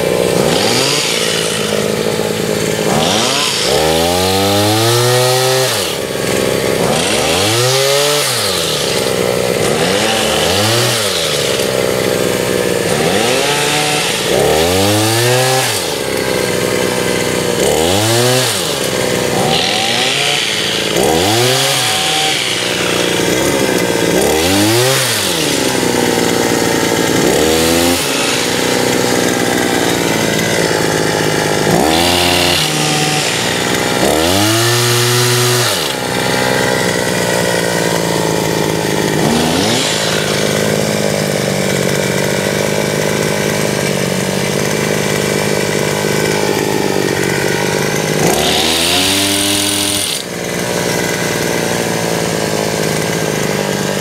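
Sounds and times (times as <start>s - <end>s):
small petrol engine revving: 0.0s - 54.0s.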